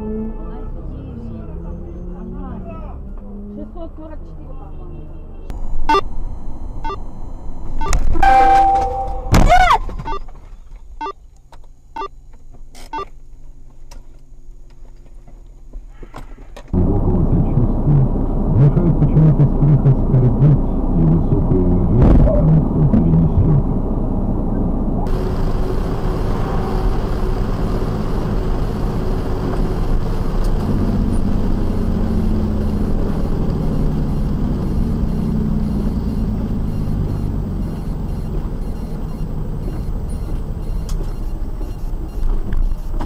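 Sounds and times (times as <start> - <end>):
vehicle engine drone: 0.0 - 16.0, 16.6 - 43.0
low rumble: 5.5 - 9.4, 16.8 - 42.2
tyre noise on wet road: 25.1 - 38.6.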